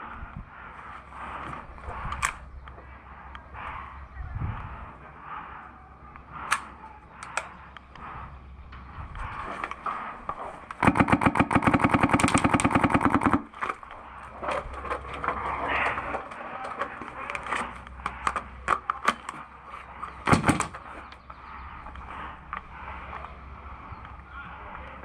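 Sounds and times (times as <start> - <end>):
airsoft gun full-auto burst: 10.8 - 13.5.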